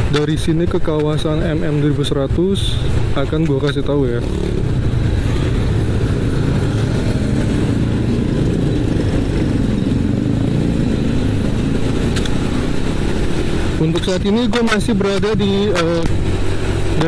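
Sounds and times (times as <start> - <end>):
road noise: 0.0 - 17.0
motorcycle engine running: 3.7 - 17.0.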